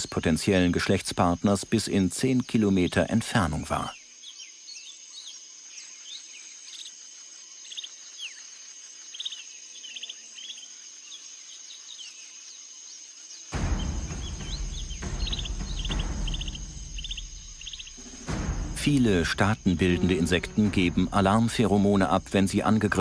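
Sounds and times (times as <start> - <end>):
insect trill: 0.0 - 23.0
birds chirping: 13.6 - 23.0
low rumbling: 13.6 - 23.0.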